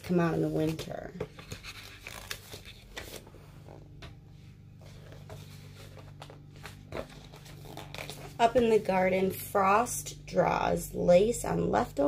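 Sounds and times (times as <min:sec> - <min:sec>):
low steady hum: 0:00.0 - 0:12.0
book pages rustling and turning: 0:00.1 - 0:09.2.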